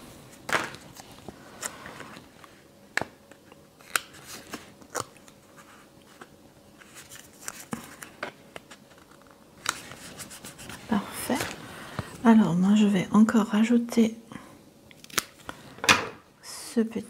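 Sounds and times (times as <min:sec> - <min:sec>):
paper rustle: 0:03.8 - 0:11.6.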